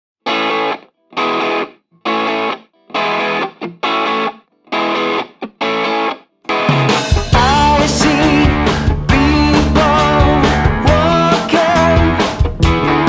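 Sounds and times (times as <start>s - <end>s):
rock band playing: 0.3s - 13.0s
distorted electric guitar chord stabs: 6.5s - 13.0s.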